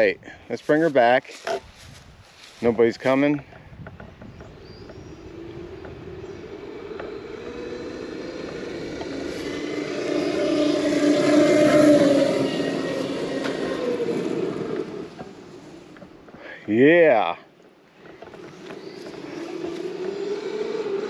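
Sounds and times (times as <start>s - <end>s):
electric motor whine: 3.9s - 16.4s, 18.0s - 21.0s
tyres on gravel: 4.2s - 17.1s, 17.9s - 21.0s.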